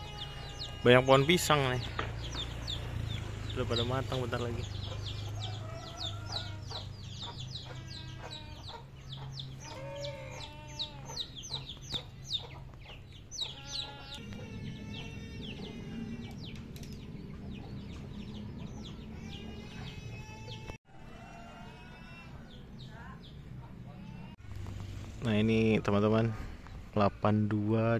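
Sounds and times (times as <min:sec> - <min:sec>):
chickens clucking: 0:04.4 - 0:22.5.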